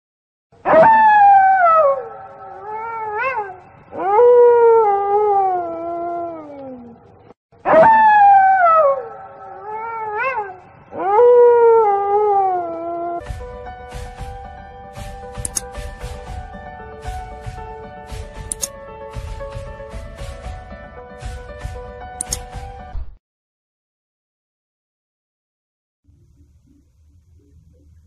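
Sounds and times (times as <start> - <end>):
wolf howling: 0.7 - 13.2.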